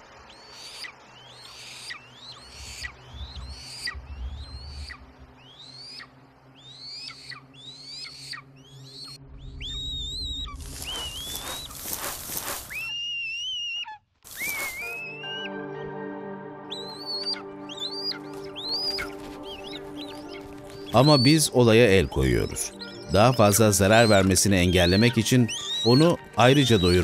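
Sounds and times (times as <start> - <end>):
eagle shrill whistled calls: 0.3 - 11.8, 12.7 - 15.5, 16.7 - 27.0.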